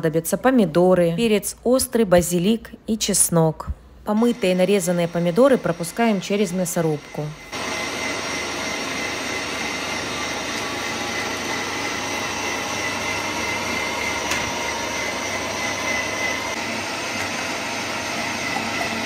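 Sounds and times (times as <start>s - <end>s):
electric grinder motor whining: 4.4s - 19.0s.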